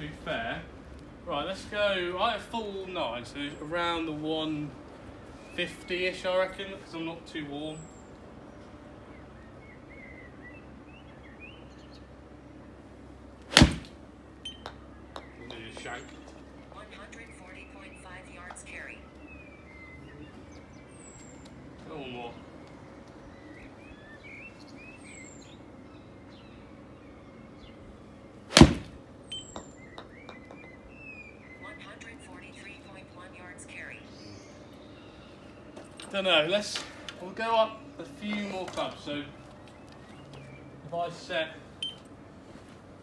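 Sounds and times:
birds chirping: 0.0s - 43.0s
golf club striking ball: 13.5s - 15.3s, 28.5s - 30.6s.

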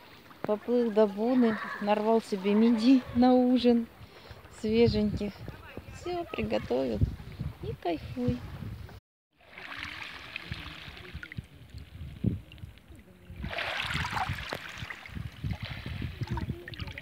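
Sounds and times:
water sloshing over pebbles: 9.4s - 11.4s, 13.4s - 17.0s.

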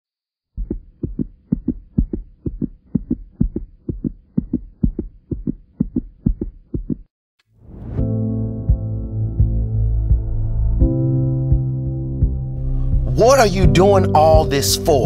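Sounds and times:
heartbeat thumps: 0.5s - 7.1s, 9.4s - 14.5s.

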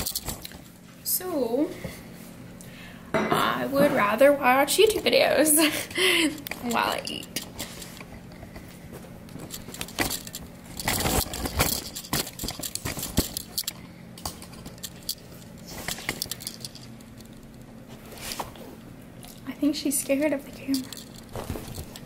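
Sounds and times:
rustling handling noise: 6.2s - 18.9s, 20.2s - 22.0s.

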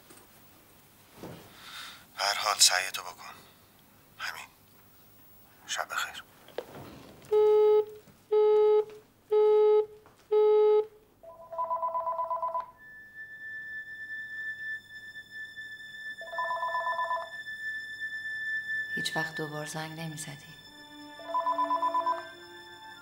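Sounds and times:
desk telephone ringing: 7.3s - 12.8s, 16.2s - 17.3s, 21.2s - 22.7s
thin steady high tone: 11.3s - 23.0s.

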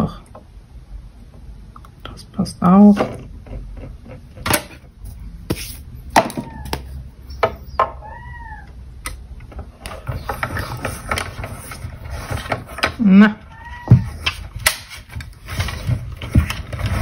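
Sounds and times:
cat meowing: 6.3s - 7.0s, 8.0s - 8.8s, 13.2s - 14.3s
low rumble of rollers: 15.2s - 17.0s.

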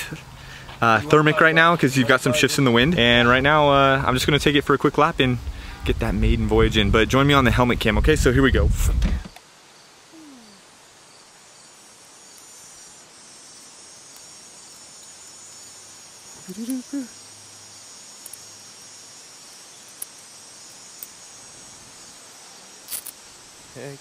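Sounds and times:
short vocal sound: 10.1s - 10.6s, 16.5s - 17.2s
high-pitched insect buzzing: 10.1s - 24.0s.

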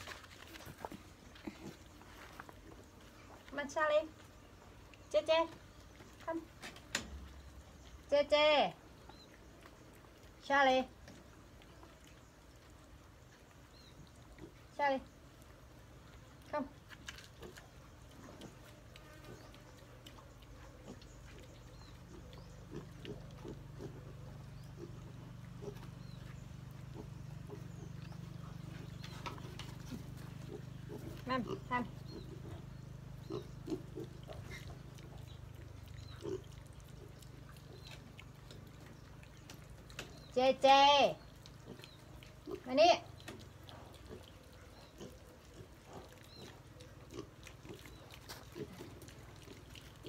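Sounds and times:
piglet chewing and smacking: 32.1s - 40.3s, 41.2s - 50.0s.

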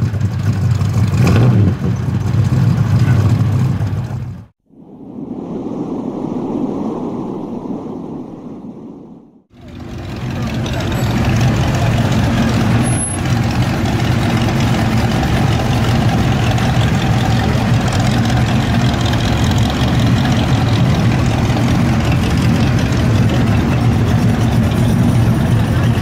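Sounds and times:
car engine idling: 0.0s - 1.2s, 9.5s - 26.0s.

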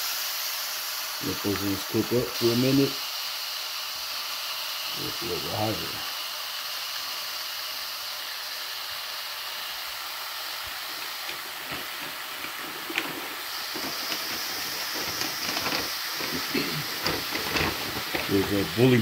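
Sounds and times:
meat sizzling in a pan: 0.0s - 19.0s
fat crackling and popping: 10.8s - 19.0s.

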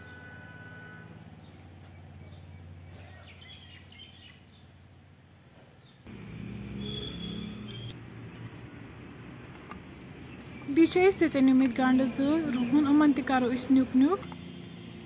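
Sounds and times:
small birds chirping: 1.4s - 5.0s, 9.8s - 15.0s.

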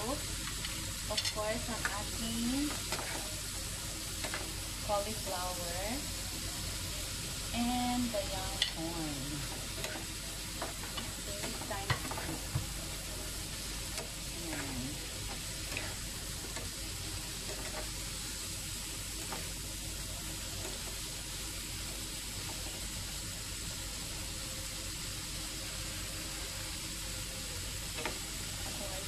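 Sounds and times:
food sizzling in oil: 0.0s - 29.0s
wooden spatula stirring: 9.6s - 18.1s.

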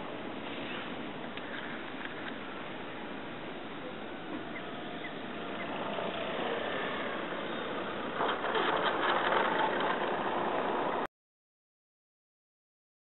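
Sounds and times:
model plane engine: 4.0s - 11.1s.

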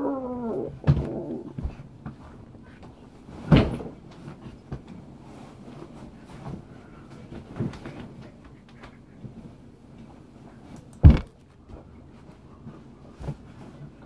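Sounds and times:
person thumping on a bed: 11.0s - 11.3s.

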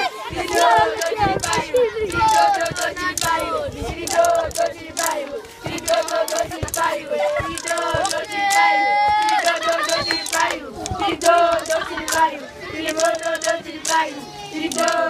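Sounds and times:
children shouting: 0.0s - 3.7s, 4.9s - 11.2s
children chanting and singing: 0.0s - 15.0s.

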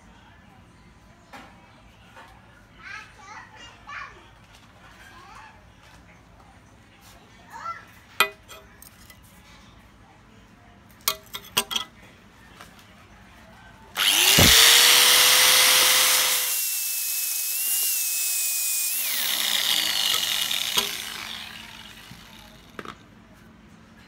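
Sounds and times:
angle grinder grinding steel: 14.0s - 22.8s.

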